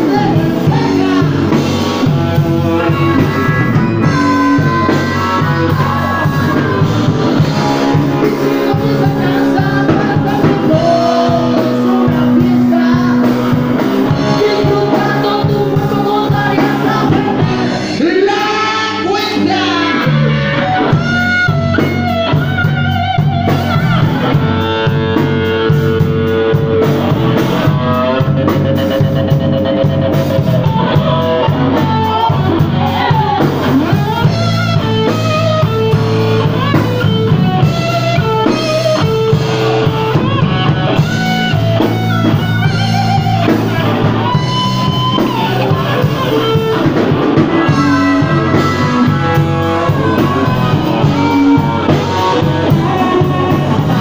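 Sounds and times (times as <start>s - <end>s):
man singing into a microphone: 0.0s - 22.8s, 27.6s - 36.0s, 47.4s - 54.0s
bass guitar: 0.0s - 54.0s
drum kit: 0.0s - 54.0s
electric guitar: 0.0s - 54.0s.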